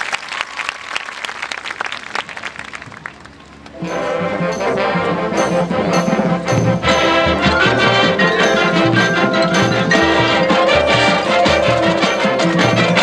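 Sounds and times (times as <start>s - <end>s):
marching band playing: 3.6s - 13.0s.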